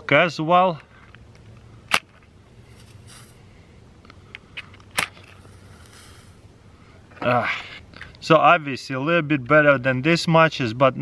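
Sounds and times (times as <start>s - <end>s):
match striking on box: 1.9s - 3.4s, 4.6s - 6.4s
match head hissing: 2.7s - 3.4s, 5.2s - 6.5s.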